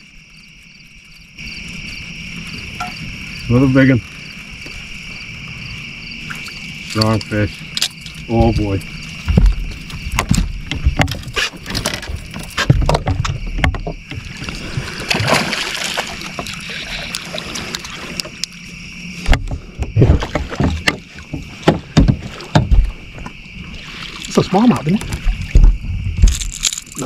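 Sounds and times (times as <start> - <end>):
crickets chirring: 0.0 - 27.0
knocks and thumps on boat: 8.3 - 17.0, 19.2 - 26.8.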